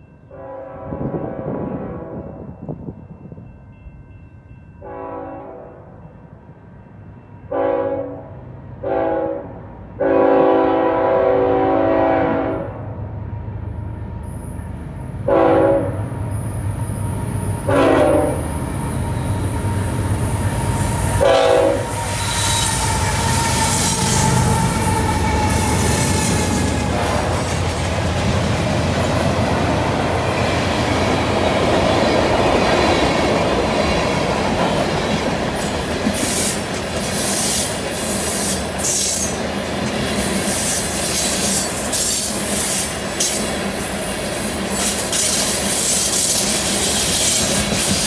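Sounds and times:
train horn blasts: 0:00.3 - 0:02.6, 0:04.8 - 0:06.0, 0:07.5 - 0:12.8, 0:15.2 - 0:16.1, 0:16.9 - 0:27.6
locomotive engines and wheels rumbling: 0:11.5 - 0:48.0.

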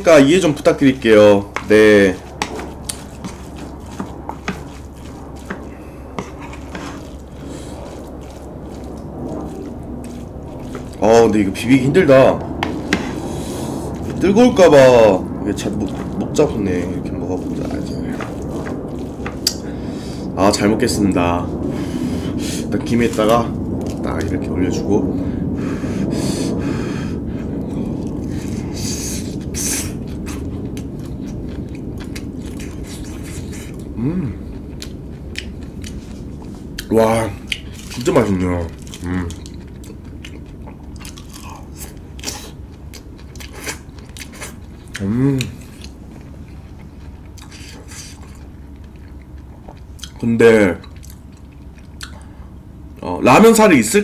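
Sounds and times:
aircraft rumble overhead: 0:00.0 - 0:53.0
chewing food: 0:00.4 - 0:20.2, 0:27.6 - 0:52.6
wooden spoon scraping rice in bowl: 0:01.5 - 0:11.1.

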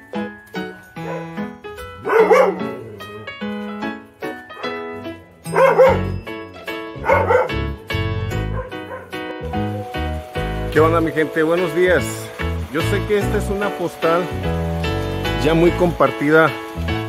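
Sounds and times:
piano music with bass line: 0:00.0 - 0:17.0
dog barking: 0:01.0 - 0:01.4, 0:02.0 - 0:03.3, 0:04.5 - 0:04.8, 0:05.5 - 0:06.1, 0:07.0 - 0:07.8, 0:08.5 - 0:09.9.

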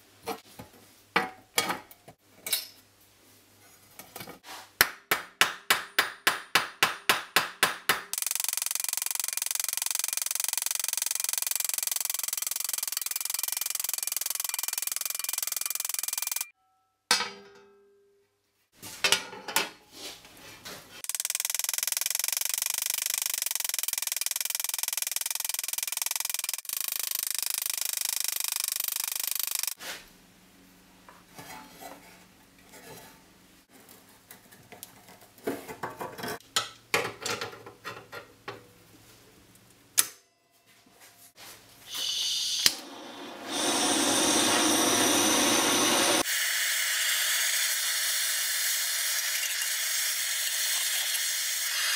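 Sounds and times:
gas torch hissing: 0:41.9 - 0:46.8.

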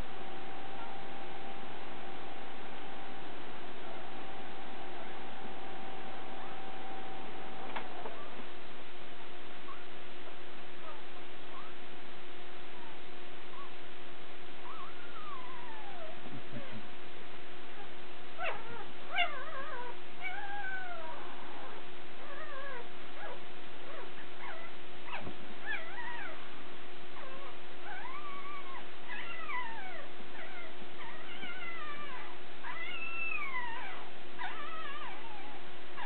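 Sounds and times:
faint steady hum: 0:00.0 - 0:36.0
puppies squeaking and whining: 0:14.6 - 0:16.7, 0:17.8 - 0:26.4, 0:27.2 - 0:36.0.

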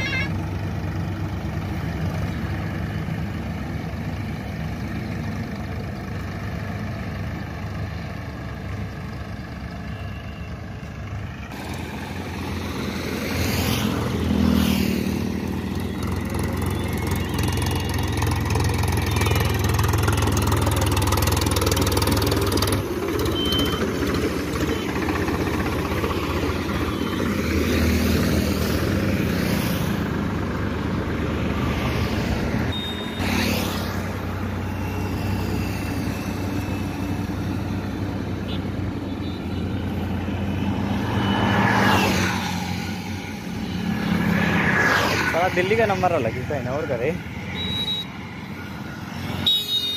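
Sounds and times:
tractor diesel engine running: 0:00.0 - 0:41.7.

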